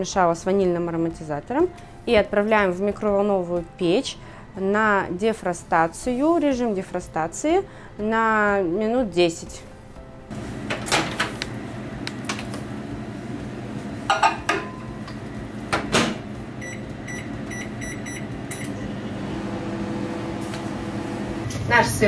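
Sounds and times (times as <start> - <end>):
microwave oven humming: 10.3 - 21.9
microwave door shutting: 10.4 - 11.4, 14.4 - 17.8
keypad beeps: 16.6 - 18.8.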